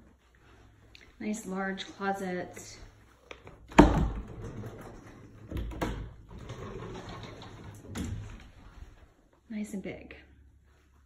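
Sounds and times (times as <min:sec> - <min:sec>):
door scuffing and creaking: 0:03.5 - 0:09.2.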